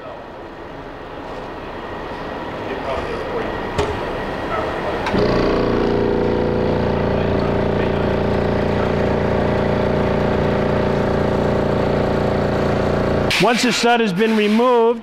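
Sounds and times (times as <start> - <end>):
motor humming: 2.1 - 13.5.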